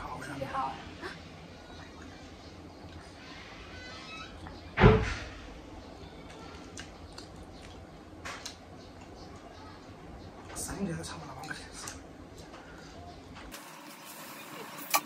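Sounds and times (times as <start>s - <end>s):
loud thump: 4.8s - 5.4s.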